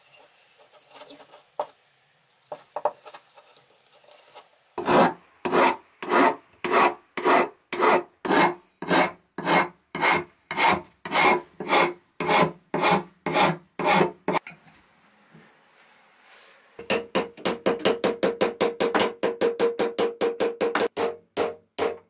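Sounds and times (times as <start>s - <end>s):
metal file rasping on wood: 4.8s - 14.4s.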